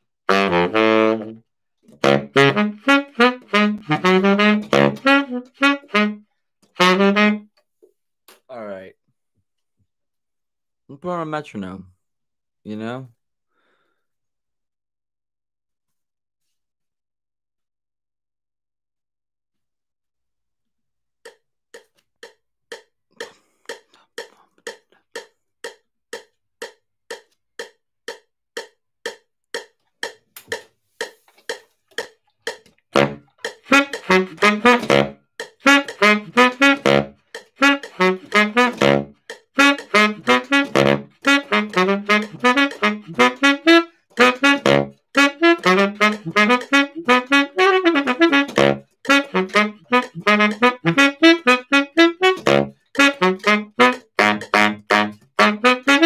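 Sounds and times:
baritone saxophone riffs: 0.3s - 1.4s, 2.0s - 7.5s, 33.0s - 56.0s
metronome ticking: 21.2s - 56.0s.

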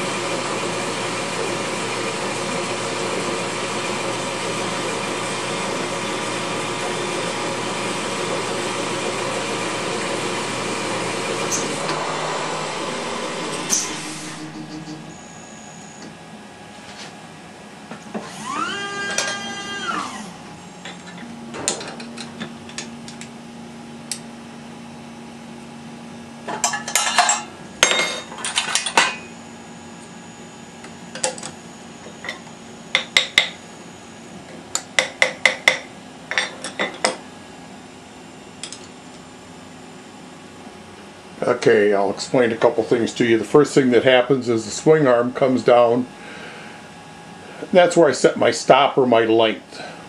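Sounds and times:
steady low hum: 8.1s - 17.9s
motor whirring: 8.3s - 16.1s, 18.2s - 20.4s.

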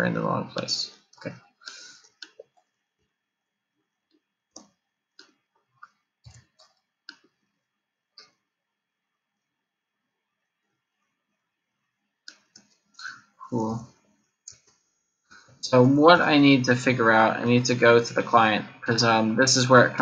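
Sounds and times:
computer mouse clicks: 4.1s - 7.4s, 14.5s - 14.8s.

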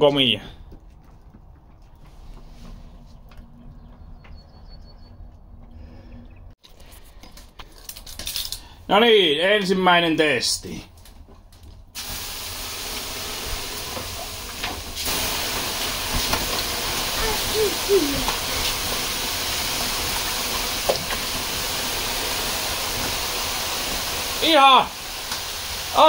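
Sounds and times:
water hissing on hot stones: 12.0s - 26.0s.

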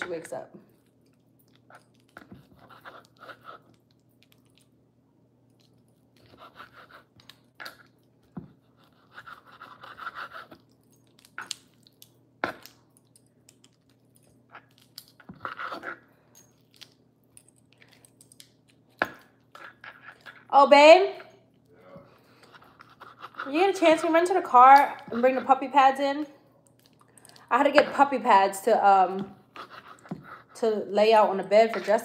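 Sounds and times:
knife sawing through meat: 8.8s - 10.6s, 22.6s - 23.9s.

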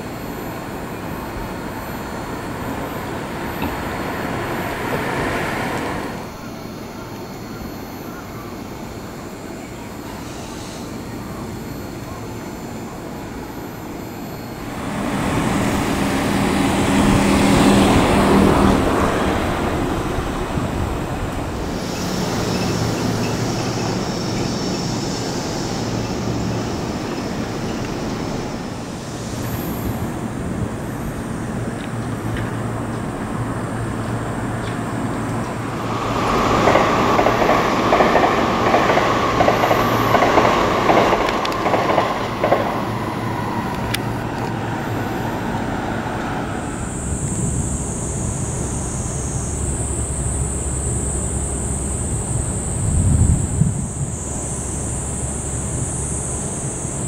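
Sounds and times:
electric train passing: 0.0s - 57.0s
train whine: 0.0s - 57.0s
wheels clacking over rail joints: 1.7s - 6.3s, 31.7s - 46.4s.

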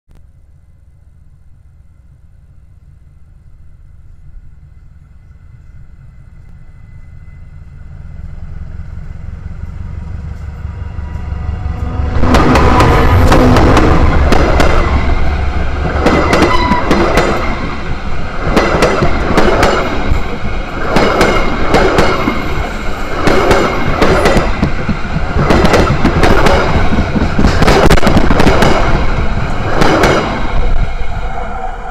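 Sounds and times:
train rumble: 0.1s - 31.9s
train wheels knocking on rails: 12.1s - 31.0s.

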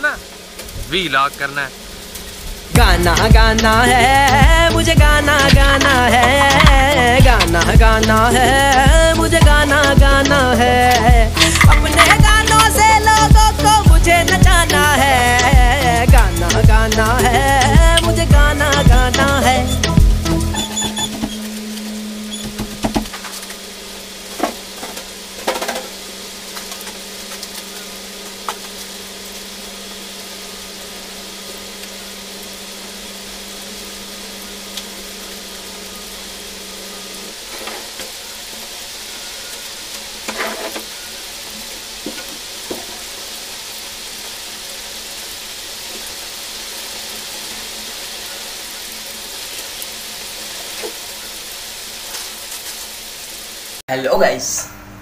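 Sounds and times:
heavy rain hissing: 0.0s - 55.0s
knocks and clatters of cleaning: 5.5s - 7.6s, 20.5s - 21.6s, 22.2s - 23.6s, 24.2s - 28.8s, 37.4s - 38.2s, 40.2s - 43.2s.

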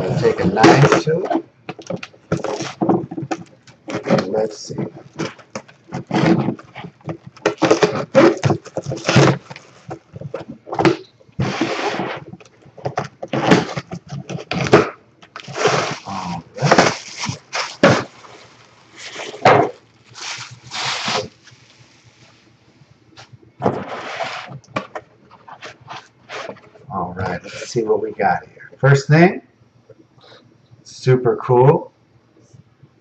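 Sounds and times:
cardboard and paper tearing: 2.0s - 3.0s, 3.8s - 10.4s, 13.3s - 21.7s.

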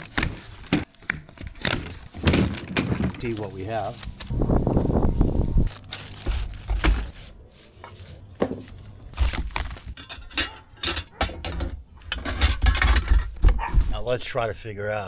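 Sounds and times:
foam and plastic wrapping rustling: 0.0s - 10.0s
metal pipes clinking and knocking: 5.8s - 7.2s, 9.2s - 13.6s.

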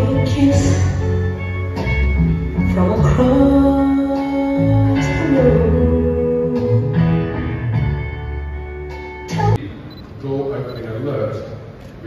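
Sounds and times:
plucked guitar: 0.0s - 9.6s.

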